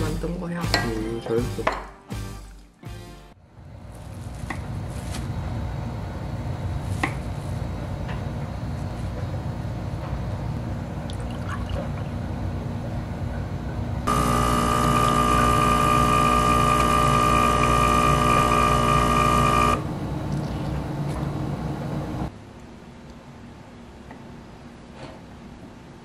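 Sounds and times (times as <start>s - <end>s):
espresso machine pump buzzing: 14.0s - 19.8s
espresso streaming into milk: 14.1s - 19.8s.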